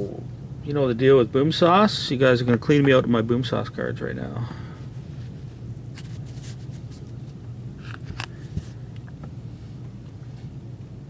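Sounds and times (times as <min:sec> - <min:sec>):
steady low hum: 0:00.0 - 0:11.0
trading cards rustling and clicking: 0:05.9 - 0:08.7.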